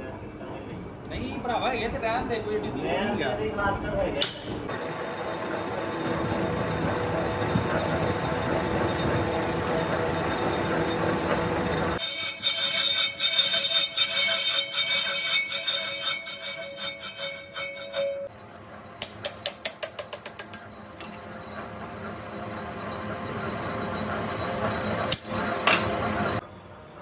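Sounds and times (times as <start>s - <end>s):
lathe running: 4.7s - 26.4s
high-pitched squealing ring: 4.8s - 19.2s, 20.5s - 26.4s.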